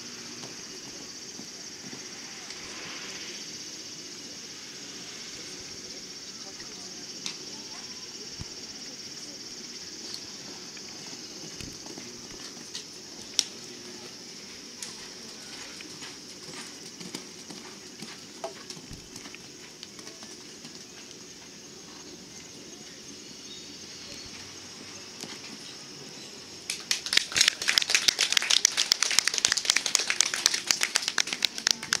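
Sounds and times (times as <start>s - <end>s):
high insect buzz: 0.0s - 26.7s
spectators clapping: 26.7s - 32.0s.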